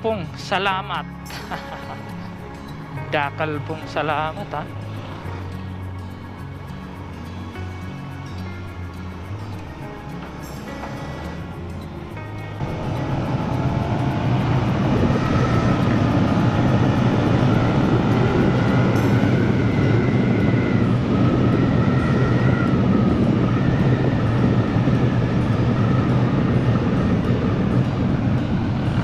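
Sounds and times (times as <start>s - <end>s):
thin whine: 0.0s - 29.0s
wind rushing over microphone: 0.0s - 29.0s
scooter engine drone: 1.1s - 29.0s.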